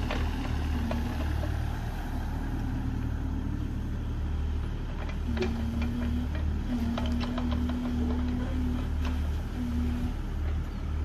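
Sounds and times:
excavator diesel engine running: 0.0 - 11.0
clanks from tracks and arm: 4.9 - 9.4.

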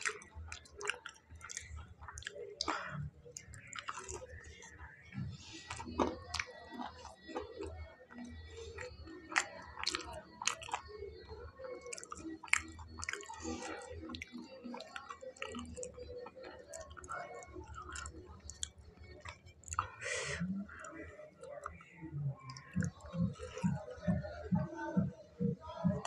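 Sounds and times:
man chewing crunchy food: 0.0 - 4.4, 8.7 - 10.9, 11.9 - 19.9.

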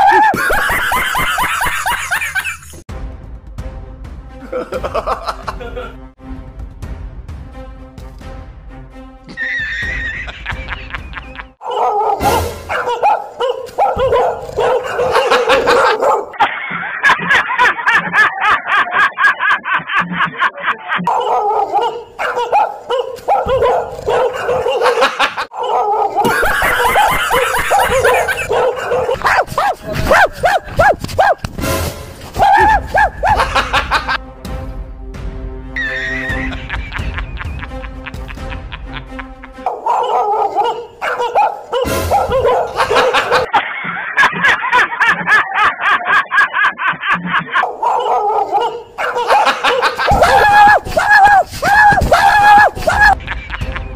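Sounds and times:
background music: 0.0 - 16.3, 17.0 - 43.5, 47.6 - 53.9
recorded dog barking and snarling: 11.6 - 16.4, 21.1 - 31.5, 32.4 - 33.5, 39.7 - 43.6, 47.6 - 53.2.

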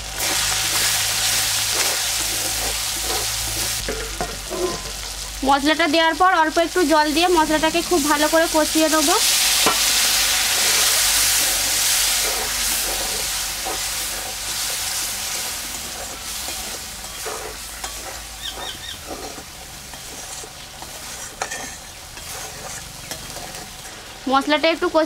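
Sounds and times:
spice paste sizzling in a pan: 0.0 - 25.0
metal spatula scraping a pan: 0.2 - 5.3, 9.0 - 24.2.

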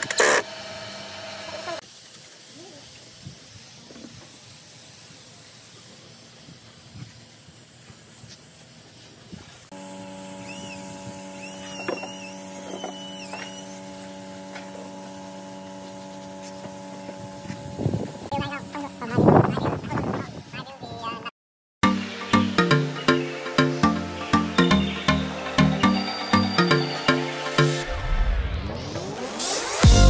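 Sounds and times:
spray gun hissing: 1.4 - 20.5
steady mechanical hum: 5.6 - 20.5.

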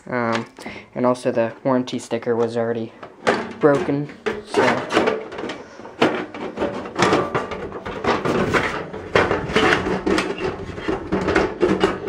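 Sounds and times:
metal cover scraping and clattering: 2.4 - 12.0.

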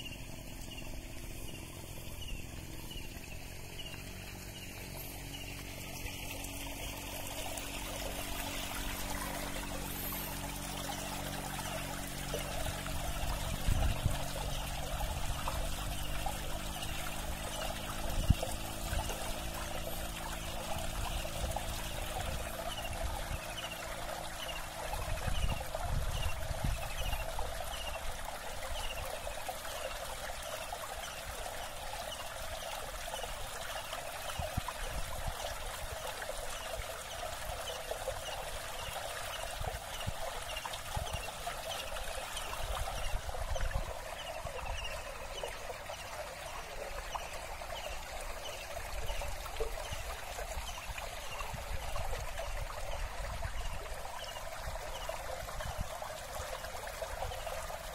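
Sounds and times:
steady outdoor hiss: 0.0 - 57.9
wind rumbling on microphone: 0.5 - 29.1, 34.3 - 36.0, 36.8 - 57.9.

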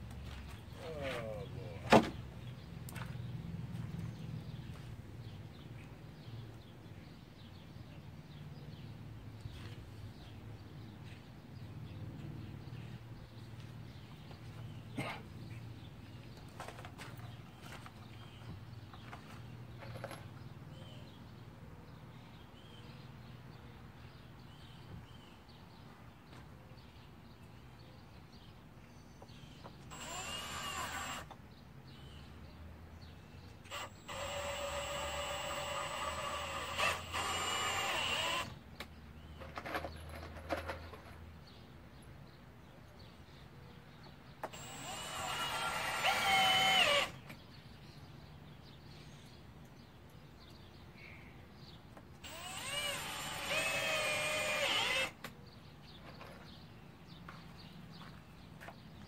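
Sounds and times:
cordless drill whining into wood: 29.9 - 31.4, 33.6 - 38.6, 44.4 - 47.2, 52.2 - 55.3.

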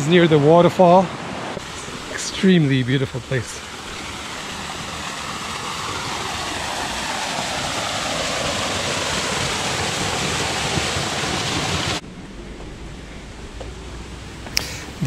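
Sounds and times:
waterfall splashing into pool: 1.5 - 12.0.

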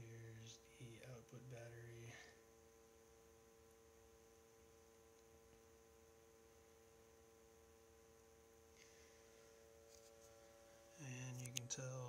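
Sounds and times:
faint electrical buzz: 0.0 - 12.0.

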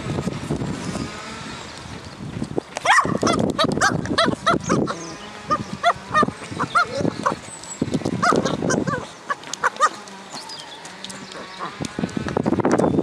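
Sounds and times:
dog yipping: 2.8 - 7.4, 8.2 - 10.6
dog growling: 8.2 - 11.8.

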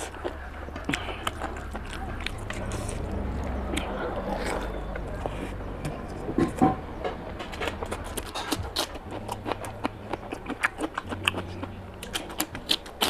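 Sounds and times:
wet chewing and lip-smacking: 0.0 - 5.6, 7.5 - 13.0.

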